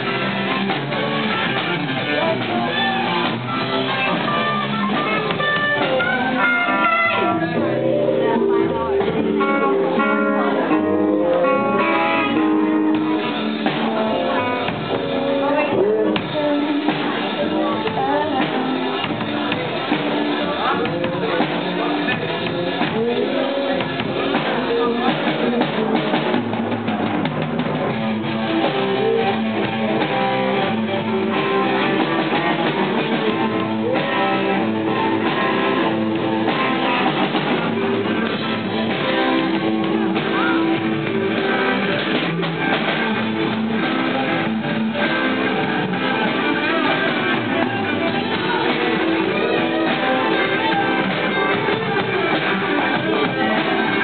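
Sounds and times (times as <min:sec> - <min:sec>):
drum kit: 0:00.0 - 0:54.0
electric guitars: 0:00.0 - 0:54.0.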